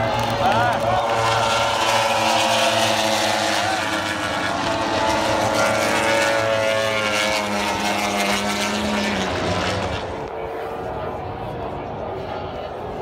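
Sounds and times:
racing motorcycles passing: 0.0 - 10.3.

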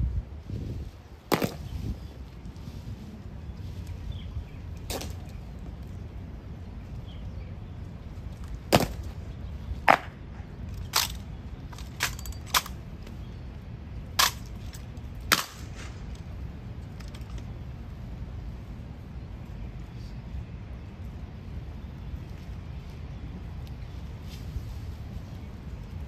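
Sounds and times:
low outdoor background: 0.0 - 26.0
rifles slapped and caught: 8.7 - 9.1, 9.9 - 12.8, 14.2 - 14.6, 15.2 - 16.0.

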